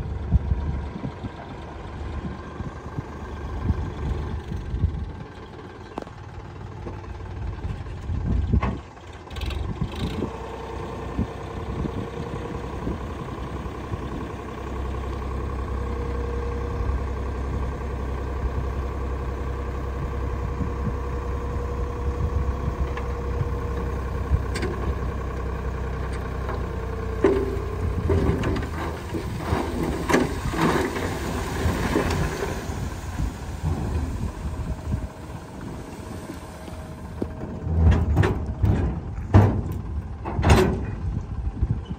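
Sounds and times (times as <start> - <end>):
tractor diesel engine running: 0.0 - 41.9
soil tumbling out of trolley: 27.2 - 41.0.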